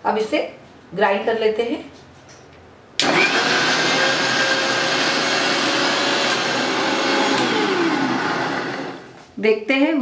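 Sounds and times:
mixer grinder grinding: 3.0s - 9.2s.

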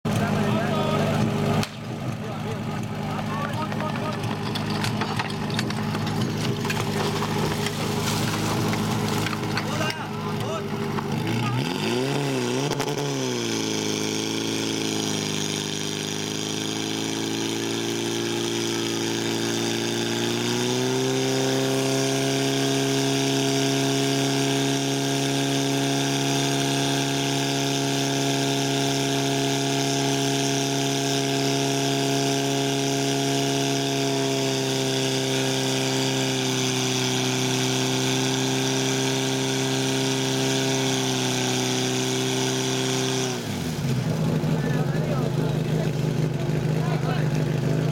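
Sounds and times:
fire pump engine running hard: 0.0s - 47.9s.

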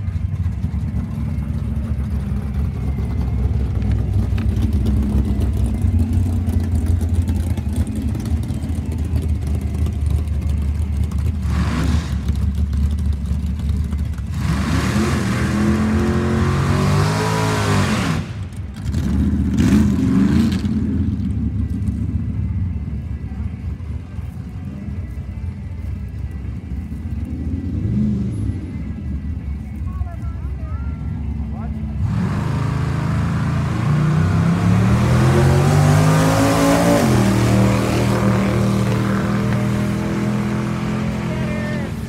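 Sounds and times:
race car engines idling: 0.0s - 14.8s, 18.2s - 32.3s, 36.8s - 42.0s
engine revving hard: 14.3s - 18.4s, 32.0s - 42.0s.

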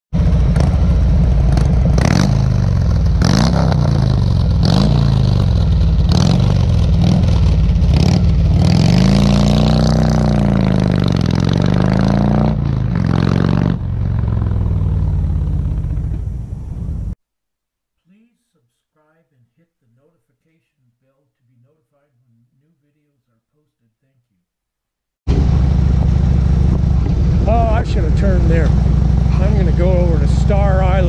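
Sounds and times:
motorcycle engine running: 0.2s - 17.2s, 25.3s - 31.0s.

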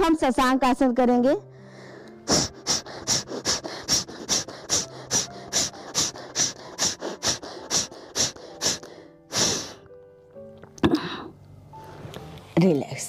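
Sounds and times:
rapid forceful nasal exhalations: 1.7s - 9.9s.

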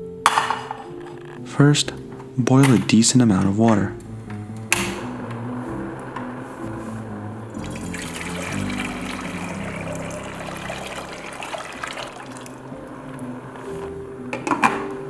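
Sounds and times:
soft background music: 0.0s - 15.0s
water pouring into a saucepan: 7.5s - 12.6s.

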